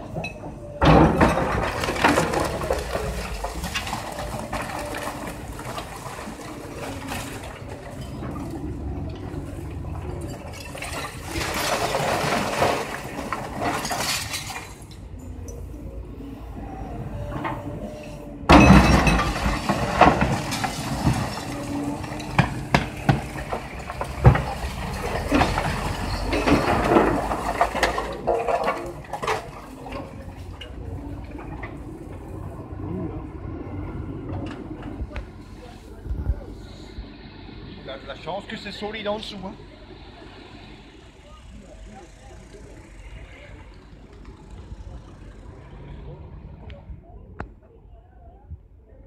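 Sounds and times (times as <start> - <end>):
masonry crashing onto rubble: 0.0 - 15.0, 18.5 - 31.9
excavator engine running: 0.0 - 47.6.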